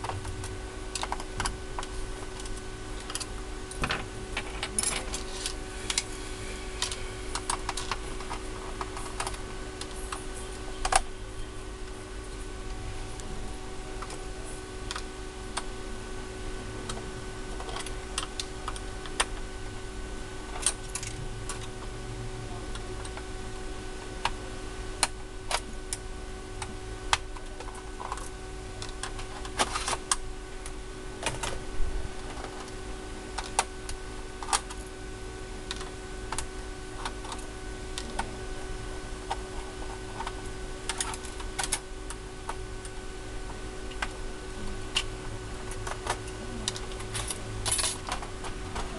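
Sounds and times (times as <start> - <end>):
steady low hum: 0.0 - 48.9.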